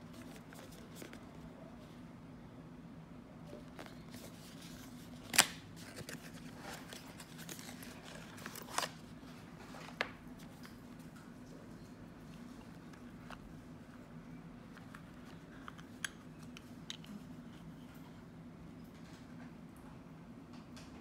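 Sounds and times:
faint low hum: 0.0 - 21.0.

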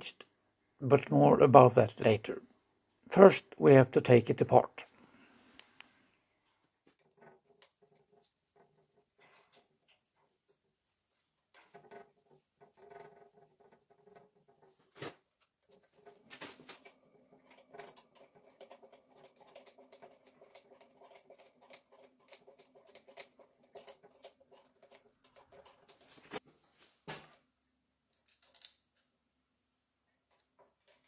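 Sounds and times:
tool clicking and scraping on metal: 6.9 - 9.8, 15.7 - 26.4.

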